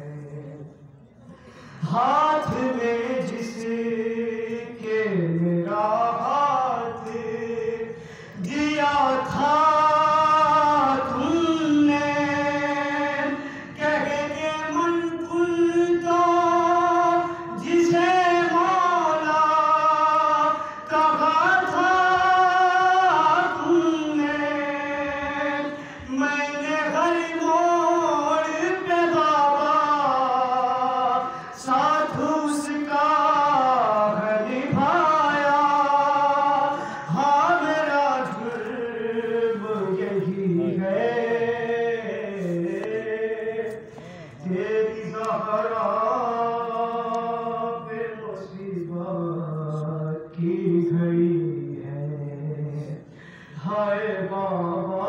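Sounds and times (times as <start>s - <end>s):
short breaths: 1.2s - 1.8s, 8.0s - 8.4s, 43.9s - 44.4s, 53.0s - 53.6s
man chanting into a microphone: 1.7s - 55.0s.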